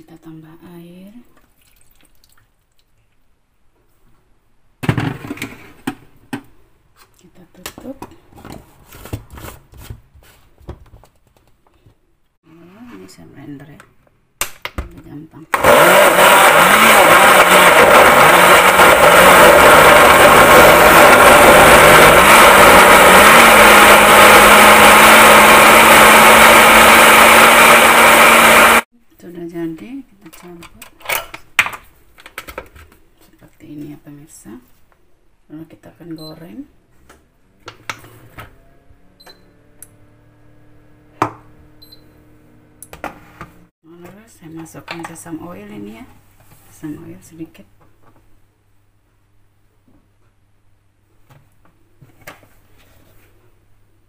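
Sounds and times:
blender motor running: 15.6s - 28.9s, 38.4s - 43.7s
short high beeps: 41.8s - 42.2s.

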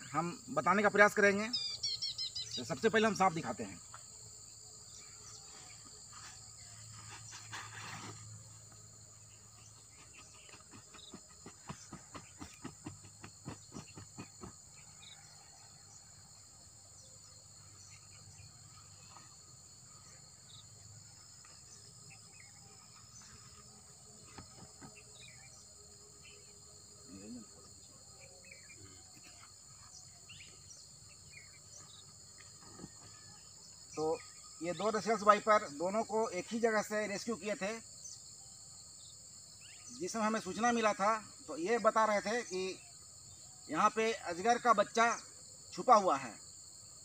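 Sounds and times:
insects shrilling: 0.0s - 15.6s
short rustle: 6.1s - 8.5s.

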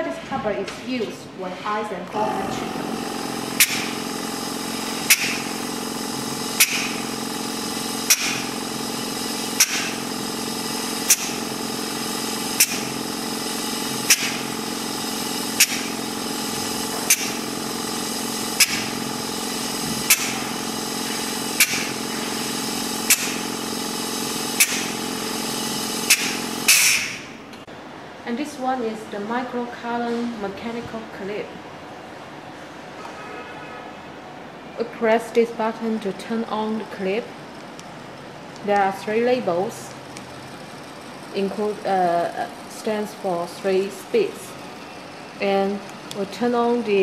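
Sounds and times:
facial machine humming: 2.1s - 27.6s, 35.8s - 47.0s
sharp machine clicks: 3.0s - 27.3s.

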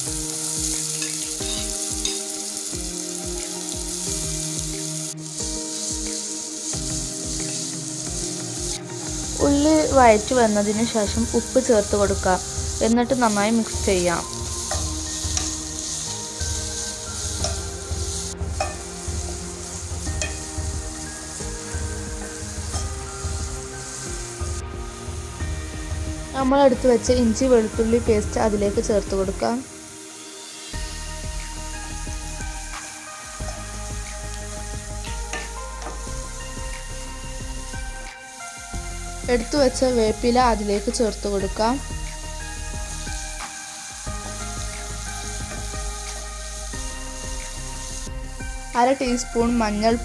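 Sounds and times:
background music with steady beat: 0.0s - 50.0s
onions sizzling in oil: 0.0s - 50.0s
spatula tapping and scraping pan: 17.4s - 17.7s, 18.6s - 18.9s, 20.1s - 20.5s.

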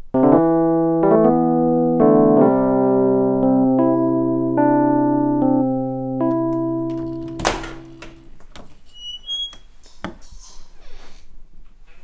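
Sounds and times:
electric piano chords: 0.0s - 8.4s.

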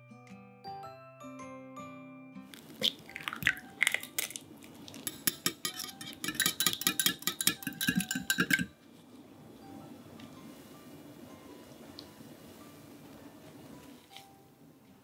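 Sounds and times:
egg breaking: 2.5s - 5.5s
whisk clinking on glass bowl: 4.9s - 8.8s.

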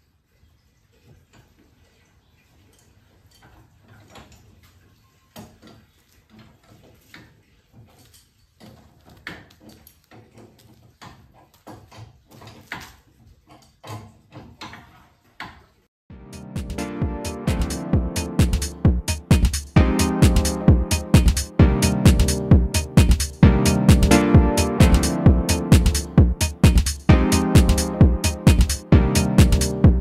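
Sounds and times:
loud music: 16.1s - 30.0s.

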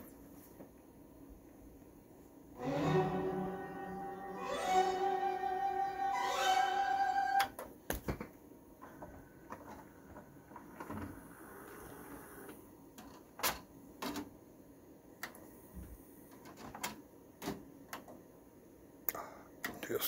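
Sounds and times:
tray motor whirring: 9.8s - 12.7s.

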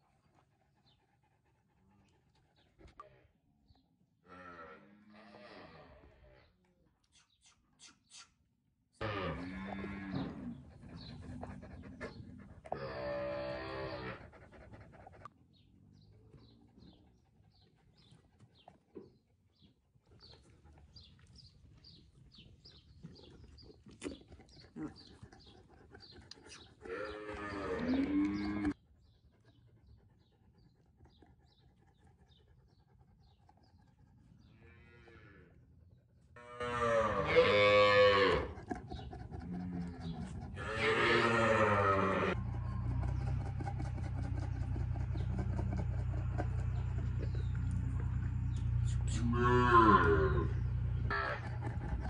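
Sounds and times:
calves bawling: 9.0s - 15.3s, 20.2s - 28.8s, 36.4s - 52.0s
calf mooing: 12.7s - 14.2s, 26.9s - 28.8s, 36.4s - 38.5s, 40.6s - 42.4s, 49.2s - 51.5s.

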